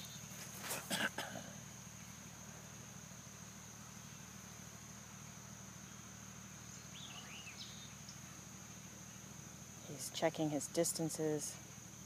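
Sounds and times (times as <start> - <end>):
insects trilling: 0.0 - 12.0
bird chirping: 6.6 - 8.4.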